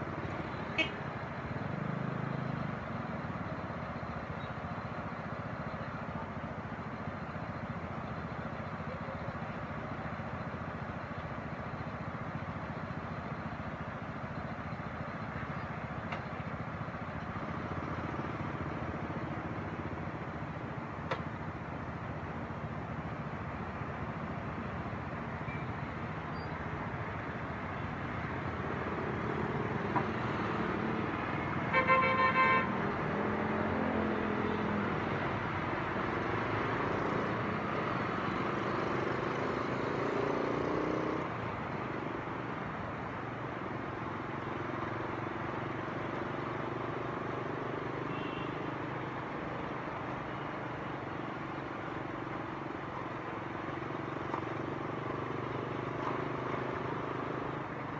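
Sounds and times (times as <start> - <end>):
car road and engine noise: 0.0 - 57.9
car horn: 0.7 - 1.0, 31.7 - 32.9, 48.1 - 48.7.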